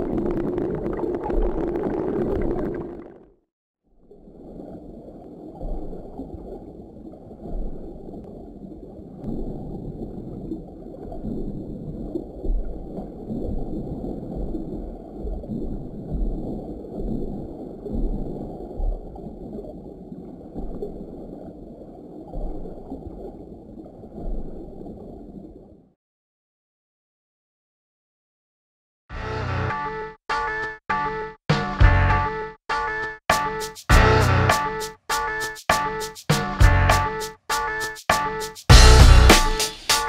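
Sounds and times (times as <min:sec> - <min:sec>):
water rushing and gurgling: 0:00.0 - 0:03.4, 0:04.0 - 0:25.9.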